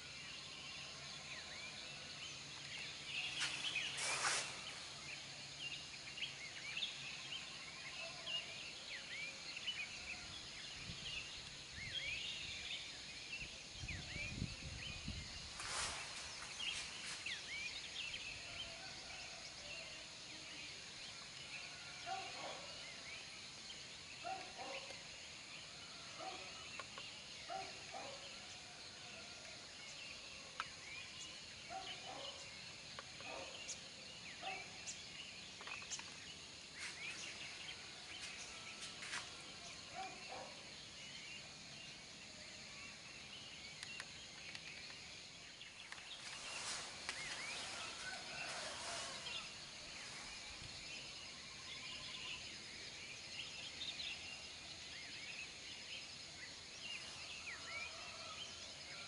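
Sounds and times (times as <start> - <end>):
birds chirping: 13.9 - 19.2, 43.3 - 52.5.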